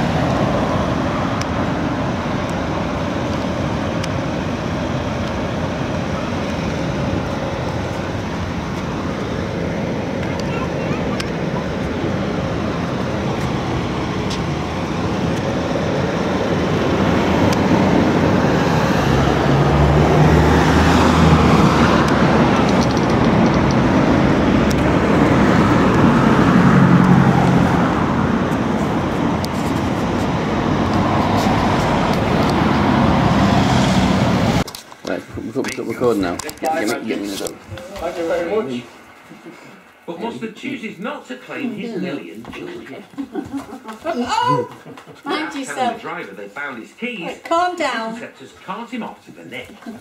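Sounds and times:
vehicle engine hum: 0.0 - 34.8
road noise of traffic: 0.0 - 50.0.

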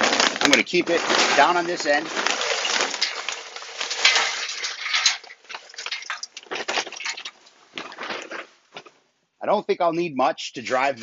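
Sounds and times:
charcoal pouring into metal: 0.0 - 7.5.

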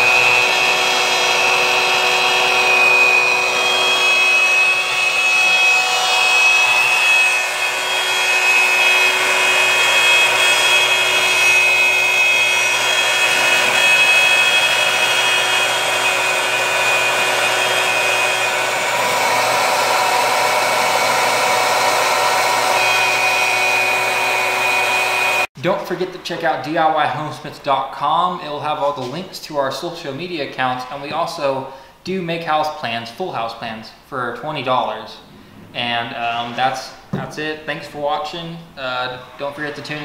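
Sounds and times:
router bit cutting plywood: 0.0 - 25.5
wood router motor whine: 0.0 - 25.5.

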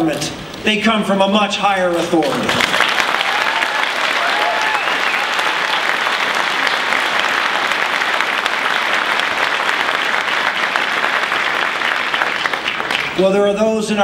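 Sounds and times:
audience applauding: 1.9 - 13.3.

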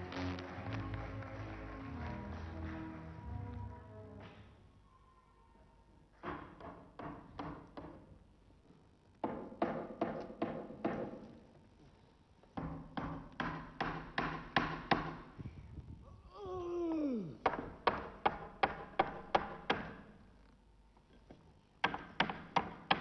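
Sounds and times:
person groaning: 16.1 - 17.5.

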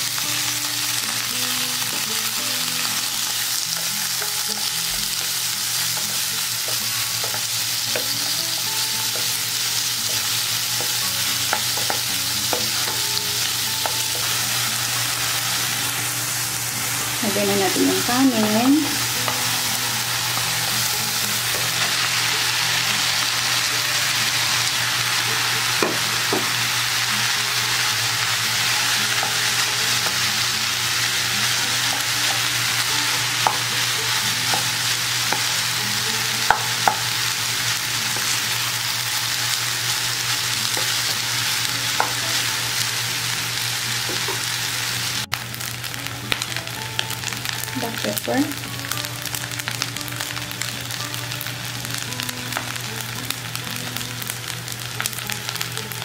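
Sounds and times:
rice and vegetables sizzling in a wok: 0.0 - 56.0
spatula knocking on wok: 36.4 - 37.1.

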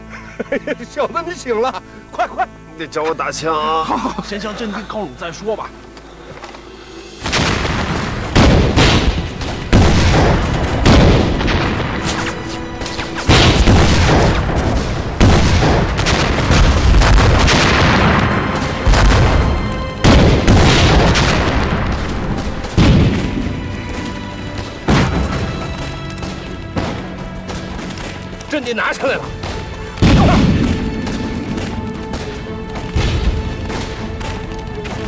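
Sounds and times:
dramatic music score: 0.0 - 35.0
gunfire: 7.2 - 24.0, 24.6 - 28.2, 29.4 - 34.5
shell explosions: 7.2 - 35.0.

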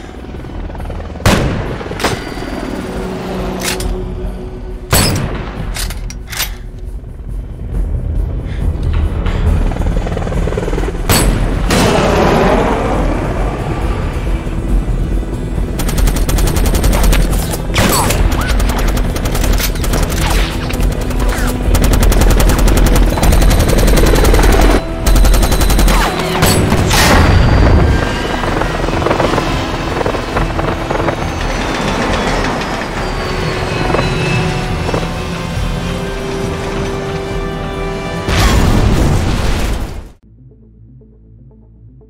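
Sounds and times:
helicopter rotor: 0.0 - 4.8, 5.7 - 38.2
dramatic film score: 0.0 - 42.0
machine gun firing rapid bursts: 15.8 - 26.4.

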